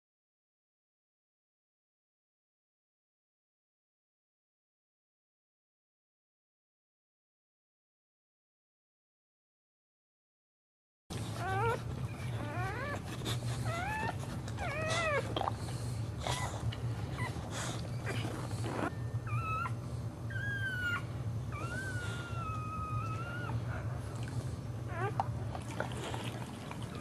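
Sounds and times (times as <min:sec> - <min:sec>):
dog whining and whimpering: 0:11.1 - 0:27.0.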